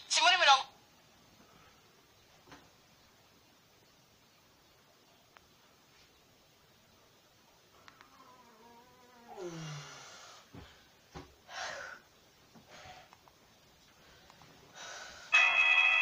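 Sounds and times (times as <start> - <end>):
man groaning: 9.2 - 9.9
heavy hissing breaths: 9.3 - 13.2, 13.9 - 15.4.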